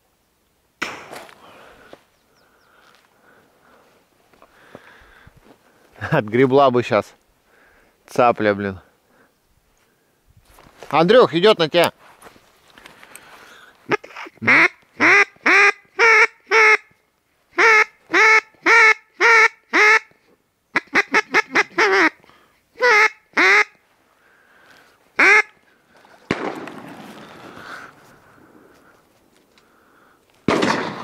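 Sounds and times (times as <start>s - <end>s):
duck quacking: 13.9s - 16.9s, 20.7s - 22.2s, 22.8s - 23.8s, 25.2s - 25.6s
distant shotgun shot echoing: 26.3s - 27.0s, 30.5s - 31.0s.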